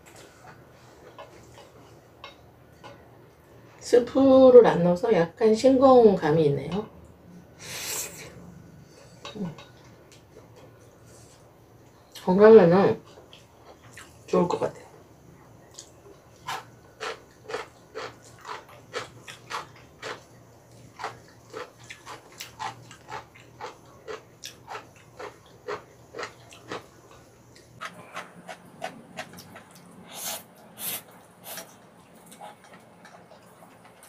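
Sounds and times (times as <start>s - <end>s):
chewing noodles: 15.7s - 34.0s.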